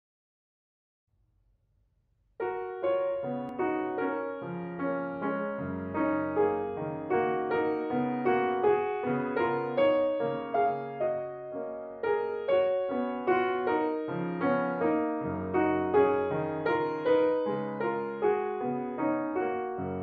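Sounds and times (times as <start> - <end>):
grand piano solo: 2.4 - 20.0.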